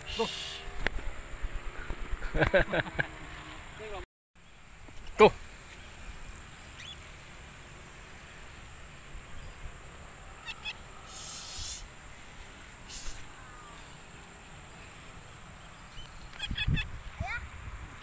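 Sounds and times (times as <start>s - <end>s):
high bird chirps: 6.7s - 7.0s, 10.4s - 11.8s, 15.7s - 17.0s
harsh high bird call: 10.4s - 11.9s, 15.9s - 17.0s
wind rumbling on microphone: 16.0s - 18.0s.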